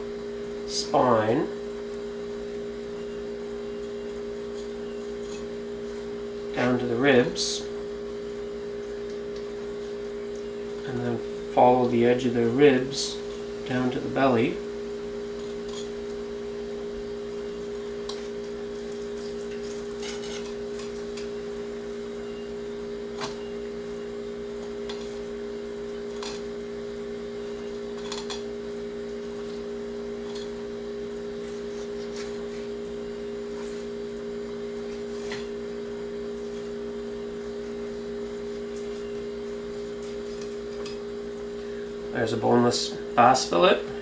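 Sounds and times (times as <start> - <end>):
steady low hum: 0.0 - 44.0
knife scraping fish bones: 18.0 - 21.3, 27.6 - 28.5.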